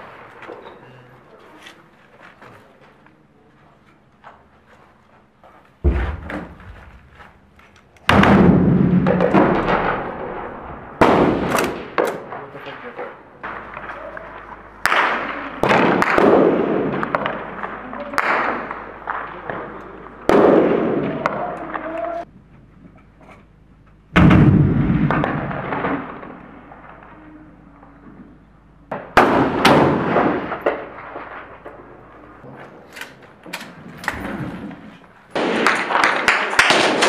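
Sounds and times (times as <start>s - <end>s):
explosions with rolling echo: 5.8s - 7.3s, 8.1s - 22.0s, 24.1s - 28.3s, 28.9s - 32.5s, 34.2s - 37.0s
gunfire: 5.8s - 7.3s, 8.1s - 22.2s, 24.2s - 27.2s, 28.9s - 32.0s, 35.3s - 37.0s.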